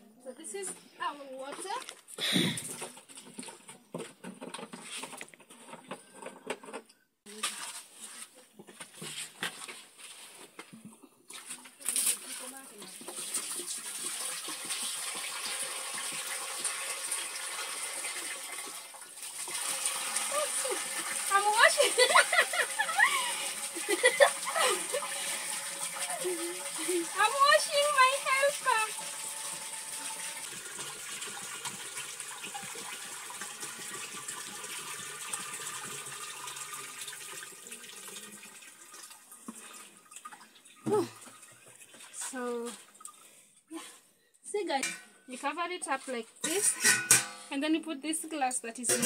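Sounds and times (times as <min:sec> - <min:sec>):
water pouring into pot: 0:11.3 - 0:43.4.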